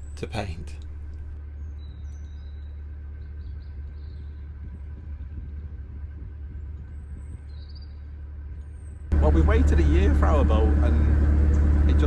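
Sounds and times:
diesel boat engine humming: 0.0s - 1.4s, 9.1s - 12.0s.

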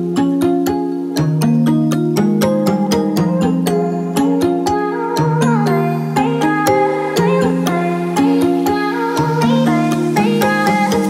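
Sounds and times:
background music with ticking beat: 0.0s - 11.0s.

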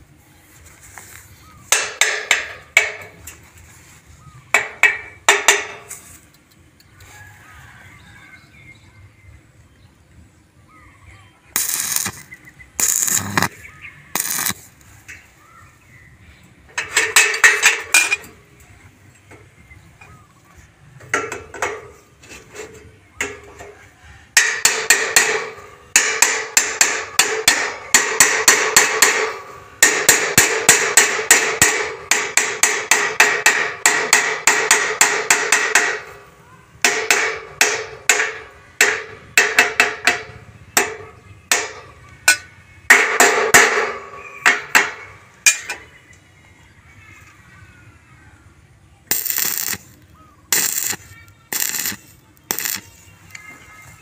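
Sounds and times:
hammer striking steel tubing: 1.7s - 3.2s, 4.5s - 5.9s, 11.6s - 12.2s, 12.8s - 13.5s, 14.2s - 14.6s, 24.4s - 36.2s, 36.8s - 45.8s, 49.1s - 49.9s, 50.5s - 52.9s.

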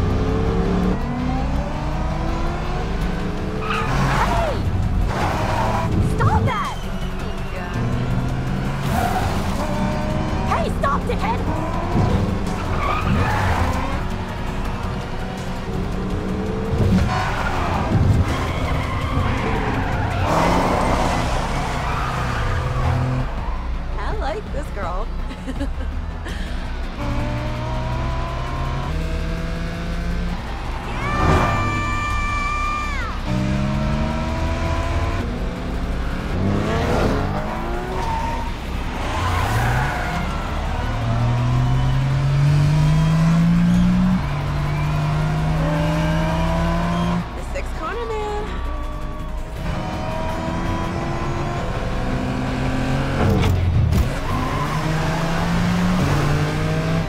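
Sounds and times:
cars racing past: 0.0s - 25.2s, 25.9s - 57.0s
sports car engines revving: 0.0s - 57.0s
tyres skidding and squealing: 0.0s - 57.0s.

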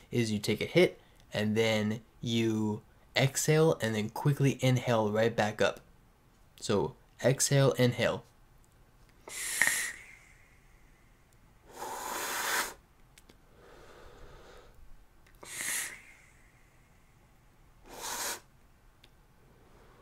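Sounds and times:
breath rushing: 9.2s - 12.8s, 13.5s - 14.8s, 15.4s - 17.2s, 17.8s - 18.5s.

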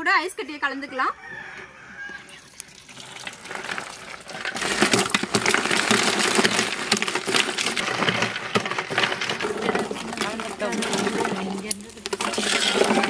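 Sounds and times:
ice chunks clattering into metal pot: 2.9s - 13.0s.

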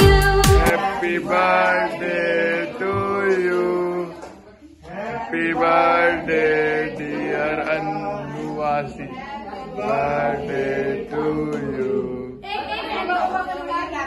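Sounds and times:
man singing chant-like notes: 5.2s - 9.1s.

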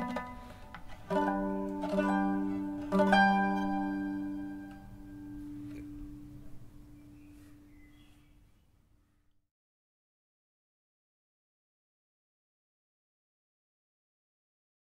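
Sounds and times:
mandolin chords: 0.0s - 8.1s.

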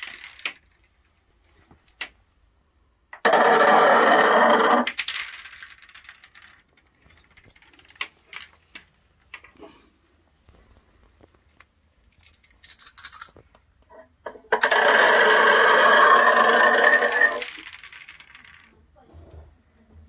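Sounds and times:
balls rattling through tubes: 0.0s - 1.1s, 3.1s - 9.7s, 12.0s - 18.8s.

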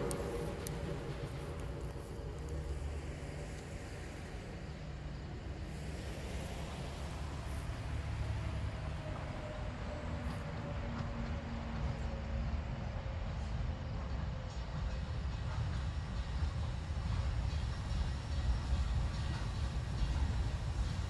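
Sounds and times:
truck passing: 0.0s - 12.6s
road traffic rumble: 0.0s - 21.0s
steam locomotive rumble: 0.0s - 21.0s.

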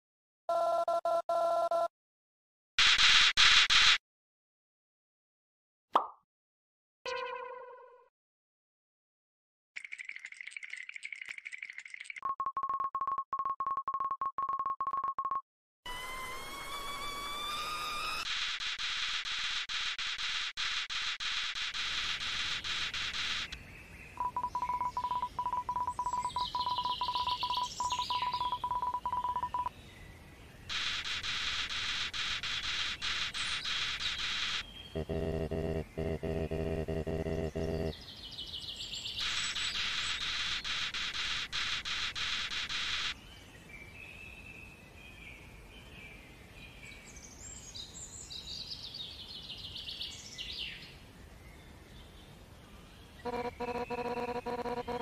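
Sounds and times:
rapid electronic beeps: 17.6s - 23.6s, 24.2s - 29.7s, 30.7s - 37.9s, 39.2s - 43.2s, 53.2s - 55.0s
high bird-like chirping: 24.2s - 29.7s
high sliding chirps: 30.7s - 37.9s, 53.3s - 55.0s
loud pulsing buzz: 30.8s - 37.9s, 53.3s - 55.0s.

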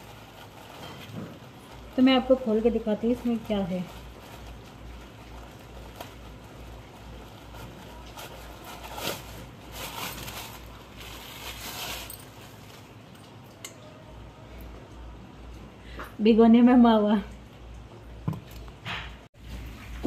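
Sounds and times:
plastic bag rustling: 0.0s - 13.3s
plastic bag swishes: 3.3s - 12.9s.

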